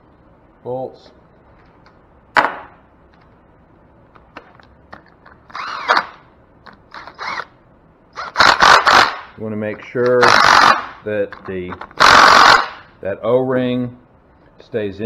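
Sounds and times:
impact wrench whining: 5.4s - 6.3s, 6.9s - 9.4s, 10.0s - 11.0s, 11.8s - 12.9s.

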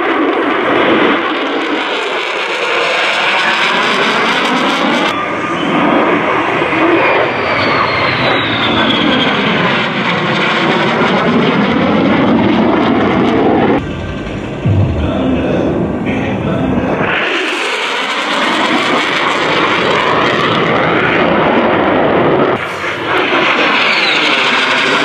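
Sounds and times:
loud jet noise: 12.8s - 18.0s, 22.6s - 25.0s
high jet whine: 13.6s - 17.3s.

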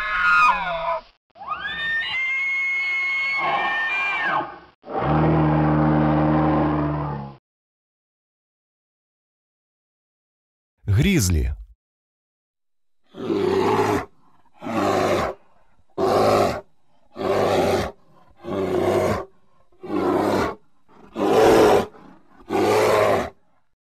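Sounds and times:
bear roaring: 4.9s - 7.4s, 13.1s - 23.4s.

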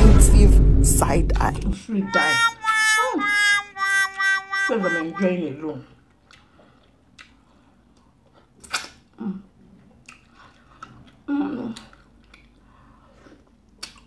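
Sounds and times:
wet chewing: 6.1s - 9.0s, 10.0s - 12.6s, 13.3s - 14.0s.

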